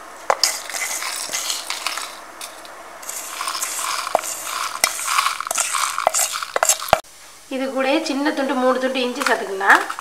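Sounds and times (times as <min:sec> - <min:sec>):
seeds rattling into steel jar: 0:00.3 - 0:07.0.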